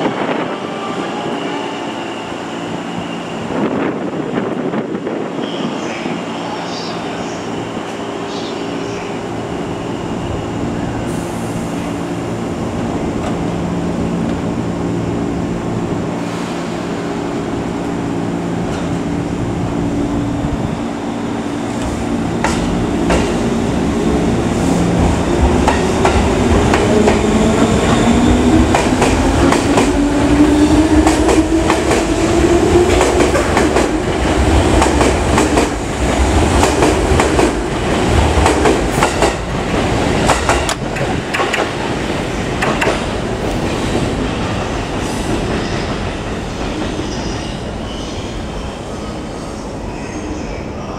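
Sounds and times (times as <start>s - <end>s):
train wheels clicking over rail joints: 40.2s - 41.8s, 42.6s - 43.9s.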